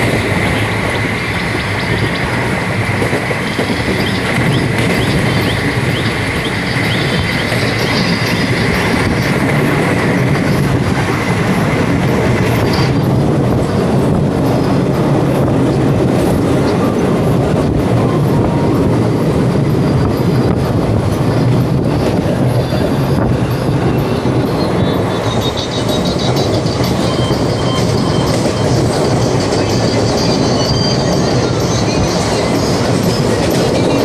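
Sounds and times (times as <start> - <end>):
train wheels rumbling on rails: 0.0 - 34.0
high steady tone: 17.9 - 34.0.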